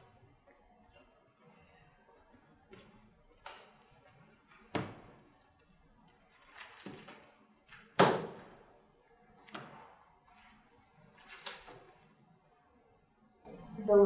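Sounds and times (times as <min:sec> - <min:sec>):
pages flipping: 0:06.2 - 0:08.3, 0:09.4 - 0:12.1.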